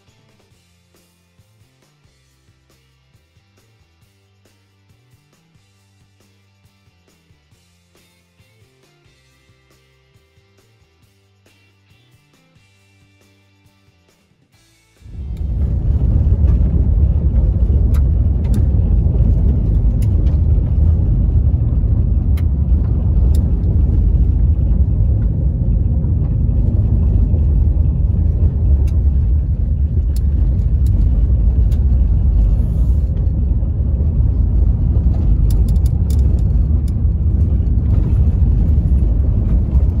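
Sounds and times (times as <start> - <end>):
tyres rumbling on gravel road: 15.0 - 40.0.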